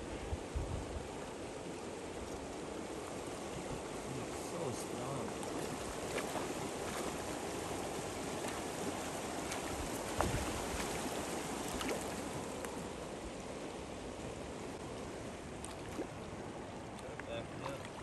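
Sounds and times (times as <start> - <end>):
river current rushing: 1.0 - 18.0
fish splashing at water surface: 5.4 - 12.5.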